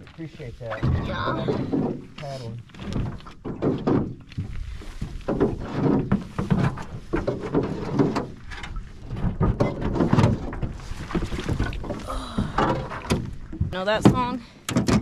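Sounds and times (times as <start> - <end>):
boat hull scraping on stones: 0.4 - 12.1.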